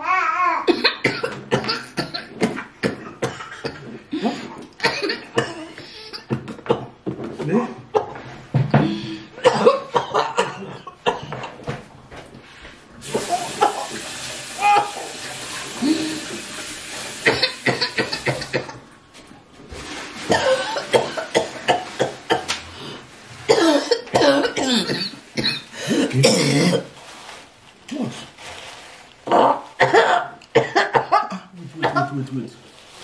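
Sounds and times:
woman coughing hard: 0.7s - 3.9s, 4.8s - 6.9s, 9.4s - 11.5s, 17.2s - 18.8s, 20.3s - 22.5s, 23.5s - 26.9s, 29.3s - 32.2s
kitchen tap running: 13.0s - 18.9s.

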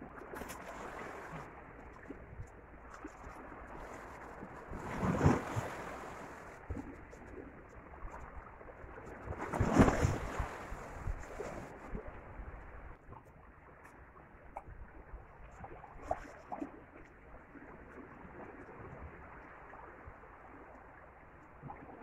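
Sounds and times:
sea waves washing against rocks: 3.9s - 6.6s.

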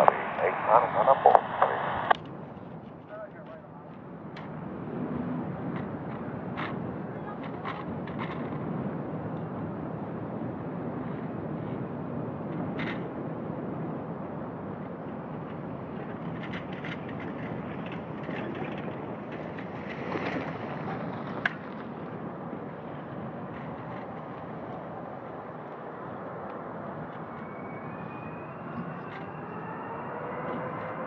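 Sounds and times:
jet engines rumbling hiss: 0.0s - 2.2s
jet engines spooling up whine: 0.0s - 2.6s, 13.5s - 31.0s.

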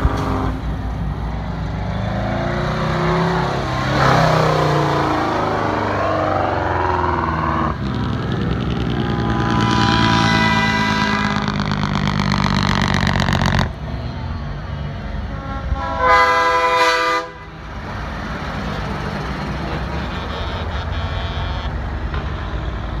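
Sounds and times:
diesel trucks rumbling past: 0.0s - 23.0s
truck air horn blast: 9.3s - 11.9s, 15.2s - 17.6s, 19.7s - 23.0s.

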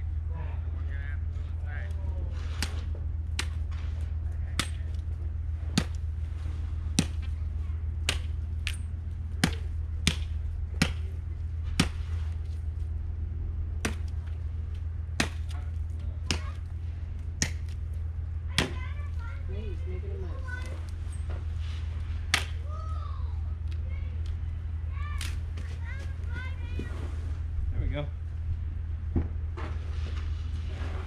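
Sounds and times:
steady low hum: 0.0s - 31.0s
machete chopping wood: 2.5s - 3.8s, 4.6s - 5.0s, 5.7s - 6.0s, 6.9s - 7.3s, 8.0s - 8.8s, 9.4s - 12.2s, 13.8s - 14.4s, 15.2s - 16.7s, 17.4s - 17.8s, 18.6s - 18.8s, 22.3s - 22.6s.

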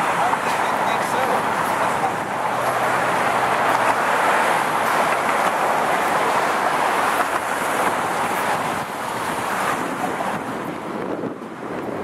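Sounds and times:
car road and wind noise: 0.0s - 12.0s.

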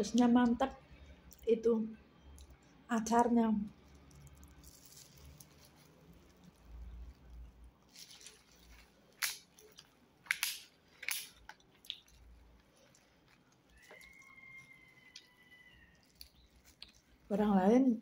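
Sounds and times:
chewing with wet clicks: 2.3s - 2.7s, 9.2s - 17.3s.

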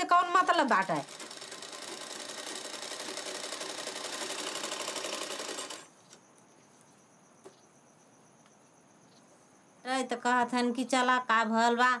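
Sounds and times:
sewing machine stitching: 0.1s - 5.9s.

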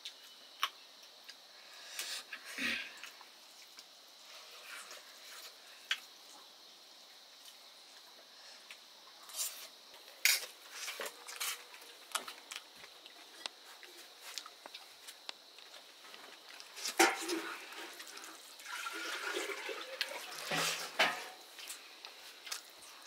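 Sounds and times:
dishes and utensils clinking: 16.9s - 17.6s, 20.4s - 21.4s.

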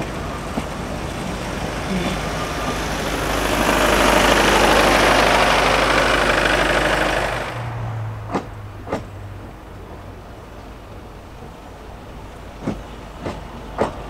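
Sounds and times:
steam train rumbling and hissing: 0.0s - 14.0s
wheels clicking over rail joints: 0.0s - 14.0s.

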